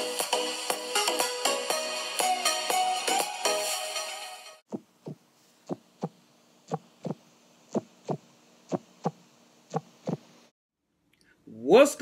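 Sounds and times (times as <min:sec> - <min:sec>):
heartbeat thumps: 0:04.7 - 0:10.3.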